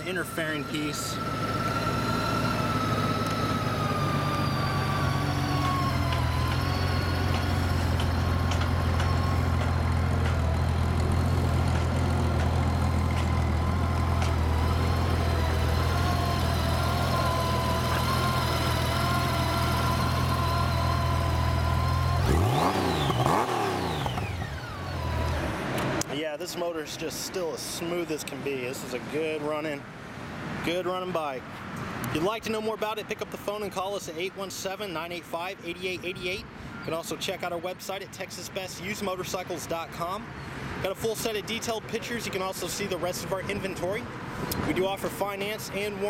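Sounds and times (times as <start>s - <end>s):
motorcycle engine idling: 0.2s - 22.3s.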